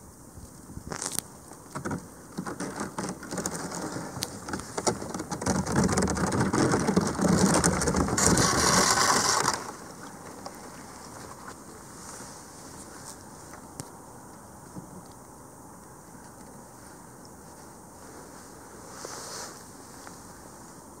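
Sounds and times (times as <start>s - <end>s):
ice crackling and grinding on hull: 1.8s - 11.9s.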